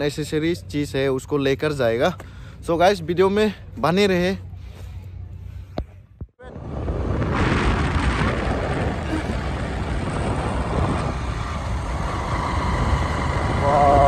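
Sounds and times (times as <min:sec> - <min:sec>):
road and engine rumble: 0:00.0 - 0:14.0
wind rushing over microphone: 0:06.2 - 0:14.0.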